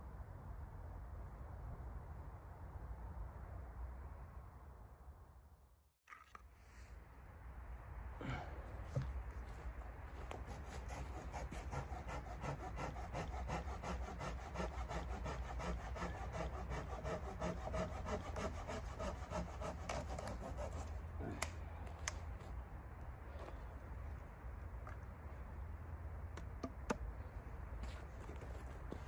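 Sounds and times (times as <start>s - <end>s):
saw rasping through branch: 10.4s - 21.5s.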